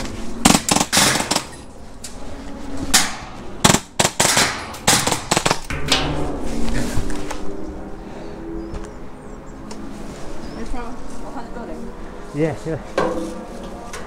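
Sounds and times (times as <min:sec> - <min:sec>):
airsoft gunfire: 0:00.4 - 0:01.5, 0:03.6 - 0:05.7.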